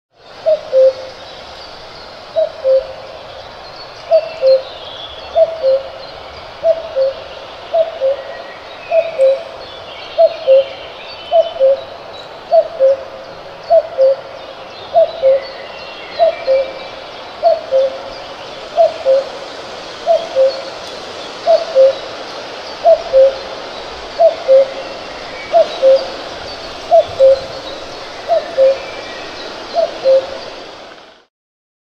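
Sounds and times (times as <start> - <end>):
cuckoo calling: 0.4 - 1.3, 2.3 - 3.1, 4.1 - 6.0, 6.6 - 9.6, 10.2 - 11.9, 12.5 - 31.0.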